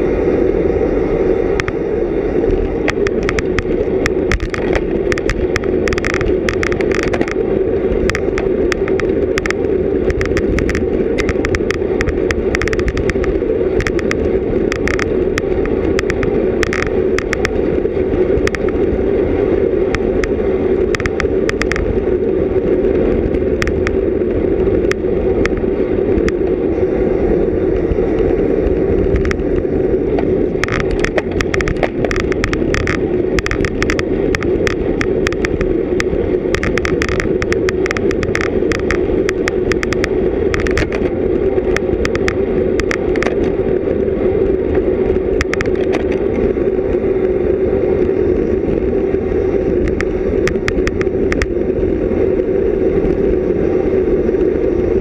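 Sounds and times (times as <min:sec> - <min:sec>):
wind and road rush: 0:00.0 - 0:55.0
clicks and rattles: 0:02.8 - 0:07.4, 0:08.0 - 0:17.6, 0:20.9 - 0:21.9, 0:30.1 - 0:43.5, 0:45.4 - 0:46.5.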